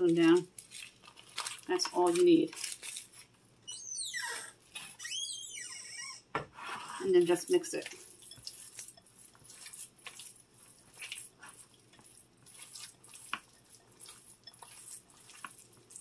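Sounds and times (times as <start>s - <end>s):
hands squelching wet meat mixture: 0.0s - 3.3s, 7.2s - 16.0s.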